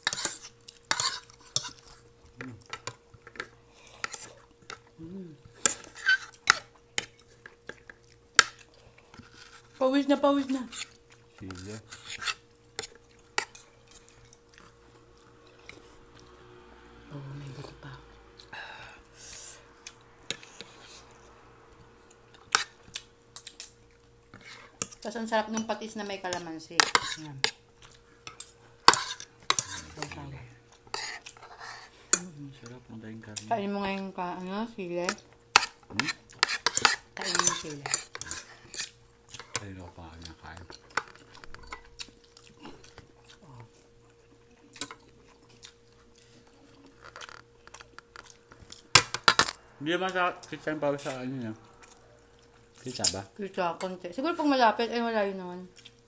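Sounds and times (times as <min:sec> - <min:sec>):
faint steady hum: 0:00.0 - 0:56.0
soft chewing: 0:00.1 - 0:09.8, 0:10.7 - 0:16.4, 0:27.1 - 0:34.1, 0:37.8 - 0:49.0, 0:50.4 - 0:53.3, 0:55.6 - 0:56.0.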